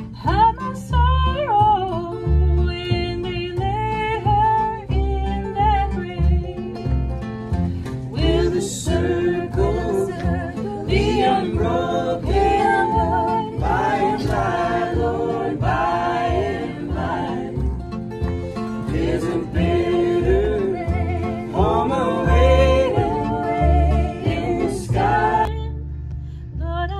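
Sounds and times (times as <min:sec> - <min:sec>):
acoustic guitar: 0:00.0 - 0:26.9
plucked upright bass: 0:00.0 - 0:26.9
choir singing gospel chorus: 0:08.1 - 0:25.6.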